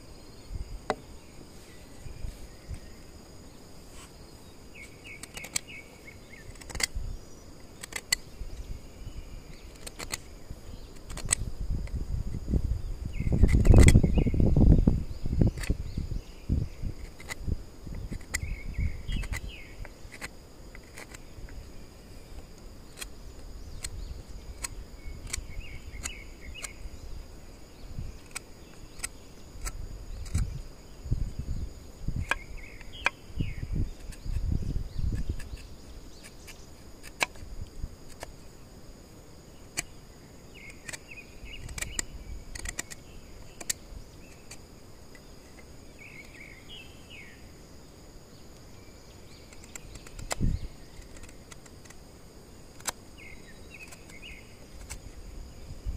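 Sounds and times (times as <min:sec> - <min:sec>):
insects droning: 0:00.0 - 0:55.9
bamboo clicks and knocks: 0:04.8 - 0:05.7, 0:06.3 - 0:07.0, 0:07.7 - 0:08.7, 0:09.5 - 0:10.3, 0:10.9 - 0:12.0, 0:13.4 - 0:14.1, 0:17.0 - 0:18.5, 0:19.1 - 0:21.6, 0:28.2 - 0:30.6, 0:32.1 - 0:33.2, 0:35.1 - 0:38.4, 0:39.7 - 0:40.0, 0:40.6 - 0:46.4, 0:49.4 - 0:52.0, 0:52.7 - 0:53.0, 0:53.7 - 0:55.1.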